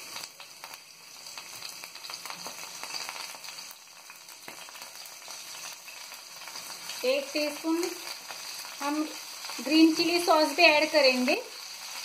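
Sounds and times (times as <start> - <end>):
garlic sizzling in frying pan: 0.0 - 12.0.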